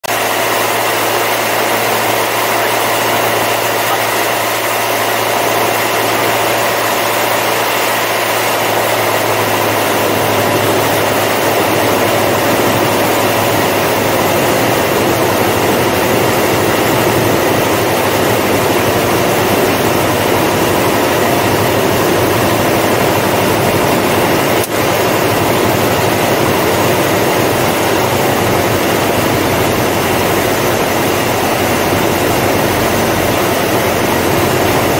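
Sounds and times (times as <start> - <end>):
aircraft engine and propeller drone: 0.0 - 34.9.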